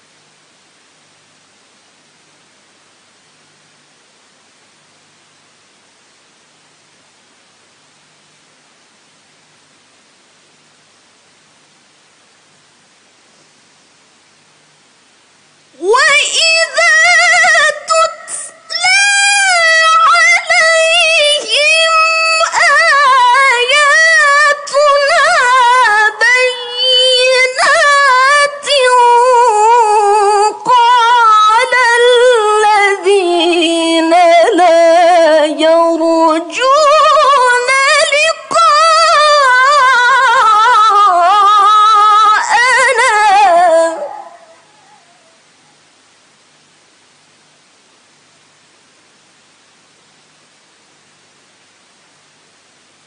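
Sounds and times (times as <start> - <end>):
woman reciting melodically: 15.8 - 45.0.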